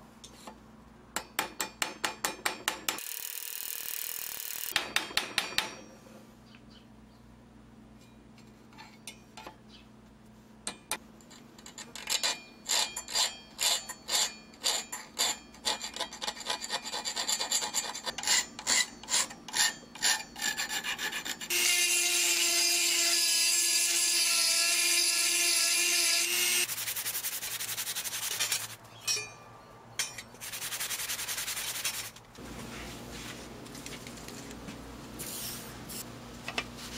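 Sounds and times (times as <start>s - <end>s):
file scraping steel: 11.6s - 29.4s.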